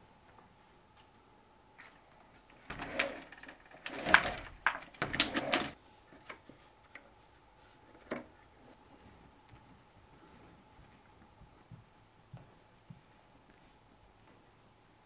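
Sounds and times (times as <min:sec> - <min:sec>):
bamboo blind slats rattling: 0:01.9 - 0:06.4.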